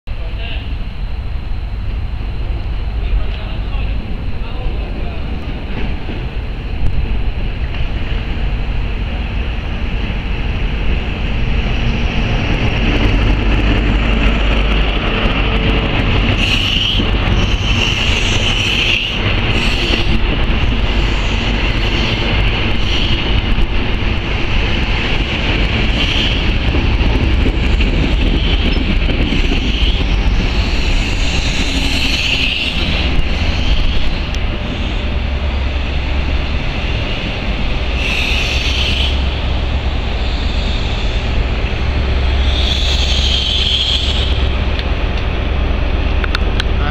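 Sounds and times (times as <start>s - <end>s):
diesel locomotive rumble: 0.1s - 46.9s
wheel and rail noise: 0.1s - 46.9s.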